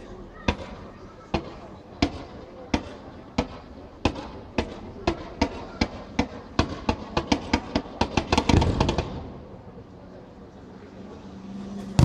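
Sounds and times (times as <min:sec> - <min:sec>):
fireworks bangs: 0:01.4 - 0:09.7.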